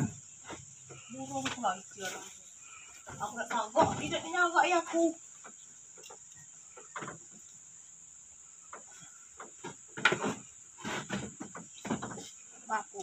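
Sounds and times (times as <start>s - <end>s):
crickets trilling: 0.0s - 13.0s
knocks and rustles of handling: 8.6s - 12.6s.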